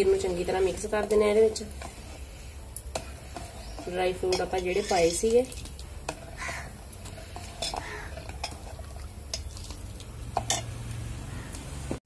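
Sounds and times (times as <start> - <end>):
ladle stirring in steel pot: 0.0 - 10.8.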